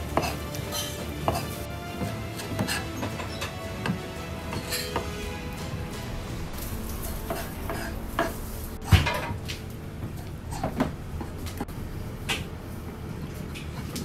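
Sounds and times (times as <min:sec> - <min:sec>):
utensils and dishes clattering: 0:00.0 - 0:05.8, 0:06.5 - 0:11.7.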